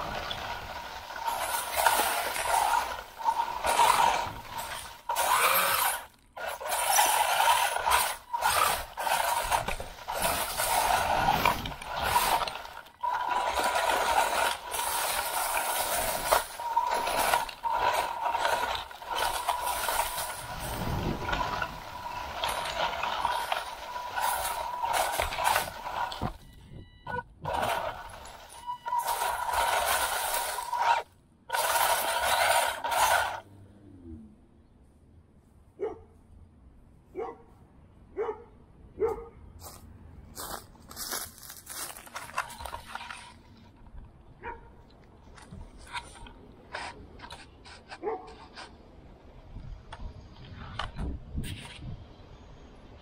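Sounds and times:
electric motor whining: 0.0s - 26.4s, 27.4s - 33.5s
chassis rattling: 0.0s - 33.5s
tyres churning over rough ground: 0.0s - 33.8s, 39.7s - 52.0s.

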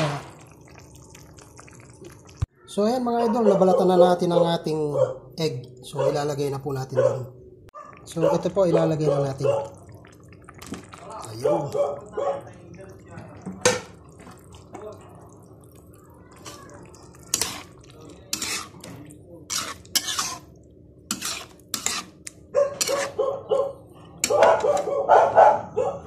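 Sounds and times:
dog barking: 3.1s - 5.3s, 5.9s - 6.3s, 6.9s - 9.8s, 11.4s - 12.5s, 22.5s - 26.0s
metal spatula scraping wok: 17.3s - 22.2s, 22.8s - 23.2s.

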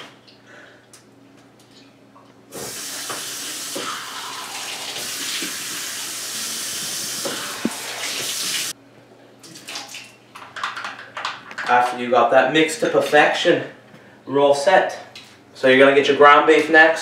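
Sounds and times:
faucet running into metal sink: 2.6s - 8.7s.

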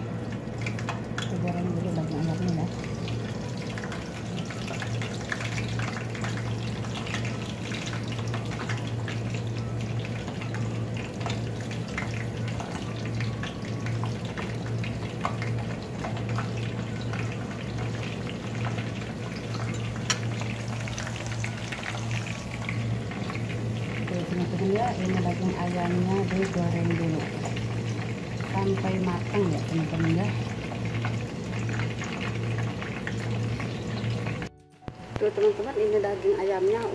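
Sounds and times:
chicken sizzling in oil: 0.0s - 36.9s.

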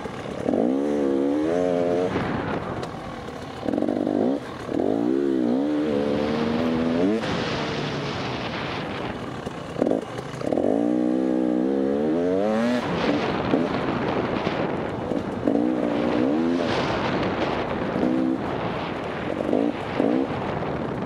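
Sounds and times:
motorcycle engine revving: 0.0s - 21.0s
steady rushing noise: 0.0s - 21.0s.

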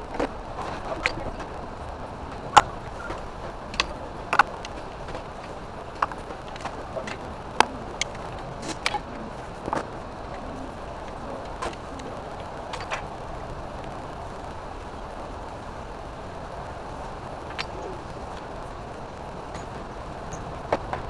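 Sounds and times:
steady background noise: 0.0s - 21.0s.

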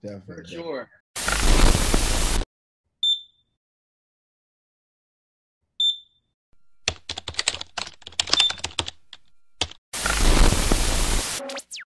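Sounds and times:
tv static hiss: 1.2s - 2.4s, 10.0s - 11.6s
sharp typing clicks: 6.8s - 10.2s.

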